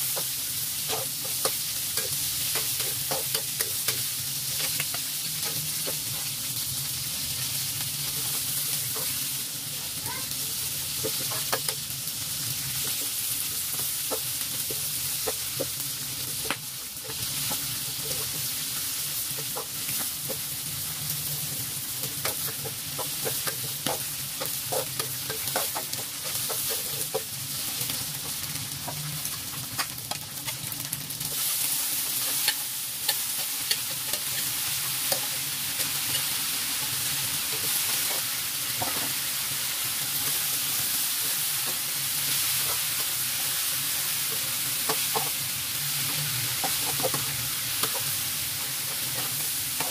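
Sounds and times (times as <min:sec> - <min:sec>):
greens sizzling in a wok: 0:00.0 - 0:49.9
spatula scraping a metal wok: 0:00.8 - 0:06.3.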